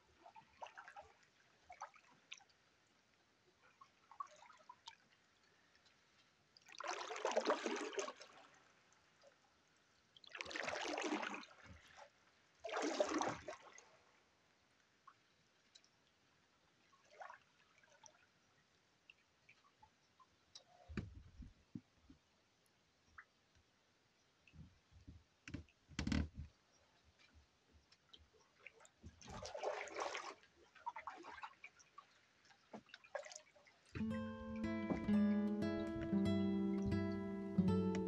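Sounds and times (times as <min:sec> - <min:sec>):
paddle strokes splashing water: 0:06.7 - 0:08.6, 0:10.3 - 0:14.0, 0:28.2 - 0:34.1.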